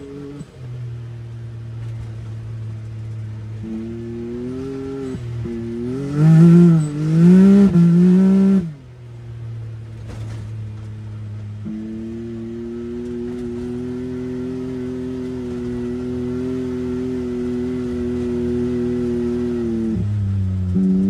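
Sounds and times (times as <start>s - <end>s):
vehicle engine revving: 0.0s - 21.0s.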